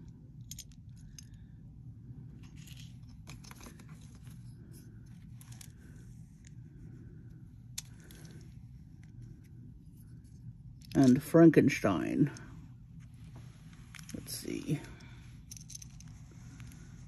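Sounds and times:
low steady hum: 0.0 - 17.0
plastic beads clicking and rustling: 0.4 - 1.4, 13.9 - 16.9.

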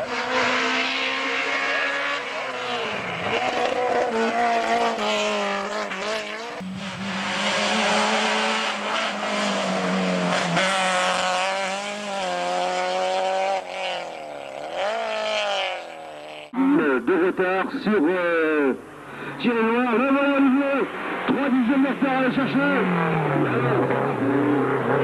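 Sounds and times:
car engine accelerating through gears: 0.0 - 16.5
rally car passing at full throttle: 0.0 - 16.5, 19.8 - 25.0.

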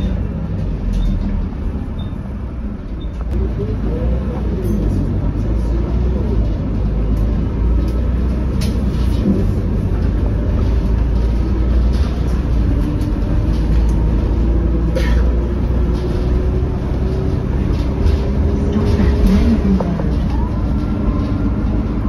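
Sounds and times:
bus engine and road rumble: 0.0 - 22.0
interior rattles: 6.0 - 22.0.

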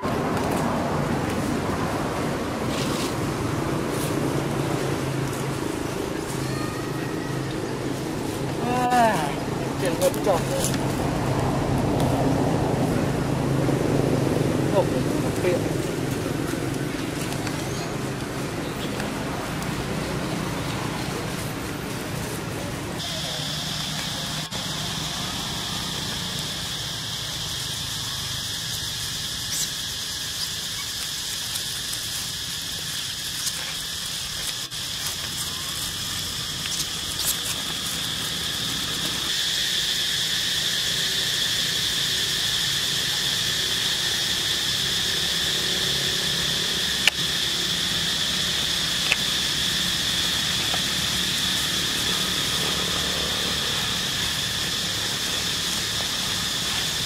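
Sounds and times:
high-pitched insect drone: 0.2 - 22.4, 23.0 - 57.0
sharp ticks: 23.7 - 57.0.

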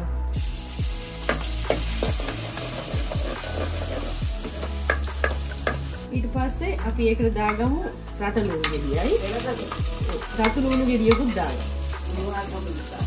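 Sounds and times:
hot oil sizzling: 0.2 - 6.1, 7.3 - 13.0
metal ladle scraping pan: 1.2 - 5.9.

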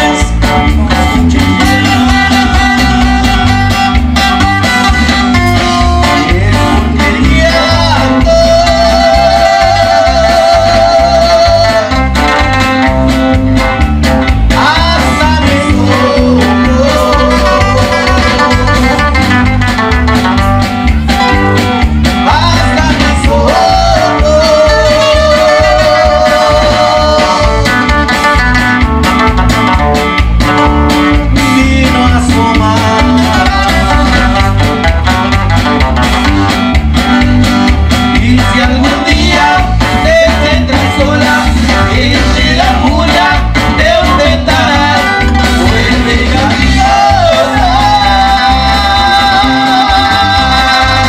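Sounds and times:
live band playing: 0.0 - 51.0.

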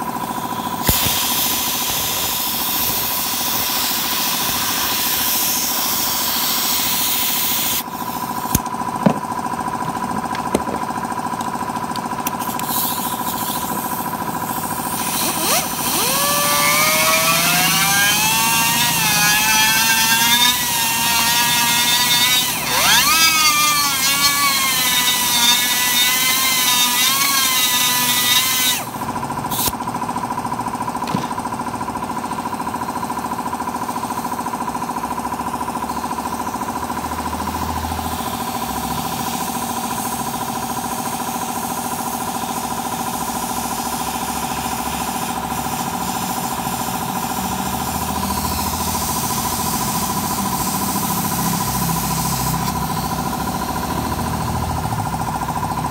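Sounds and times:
motor whine: 0.0 - 29.7
welding machine humming: 0.0 - 29.8, 42.5 - 55.0
hiss: 0.2 - 8.5, 12.4 - 29.8, 38.2 - 47.6.

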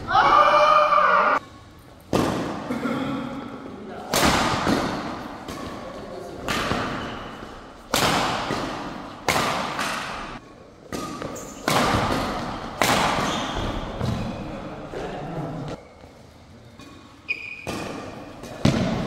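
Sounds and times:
rackets hitting shuttlecock: 2.0 - 2.7, 4.1 - 14.5, 16.8 - 19.0.

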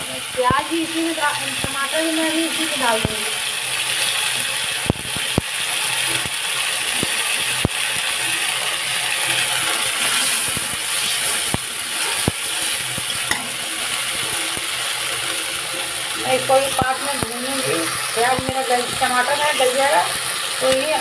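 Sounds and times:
food sizzling in oil: 0.0 - 21.0
metal spatula scraping a pan: 9.2 - 15.4.

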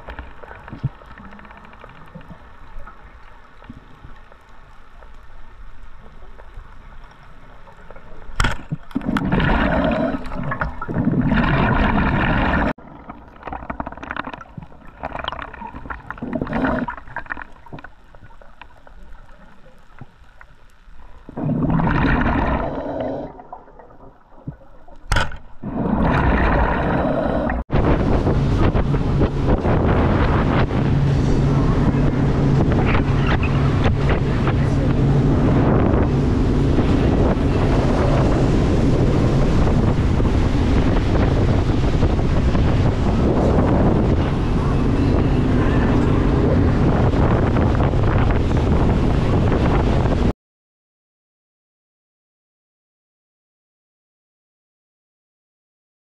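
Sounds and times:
bubbling and gurgling: 0.0 - 50.2
muffled underwater rumble: 0.0 - 50.3
wind buffeting microphone: 27.7 - 50.3.

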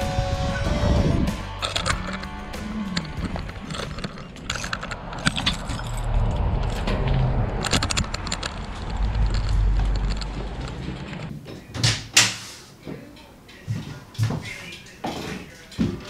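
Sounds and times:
low rumble: 0.4 - 11.3
keys jangling: 3.0 - 6.9.

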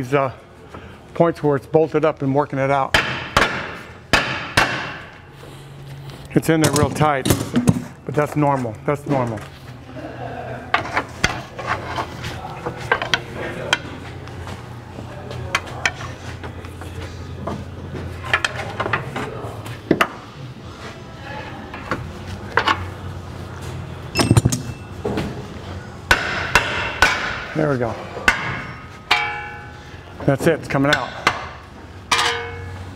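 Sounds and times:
metal clinks and knocks: 24.2 - 25.0.

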